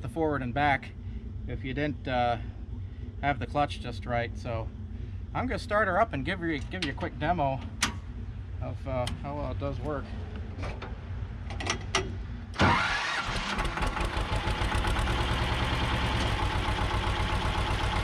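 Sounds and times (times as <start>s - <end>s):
diesel engine starting and idling: 11.5s - 18.0s.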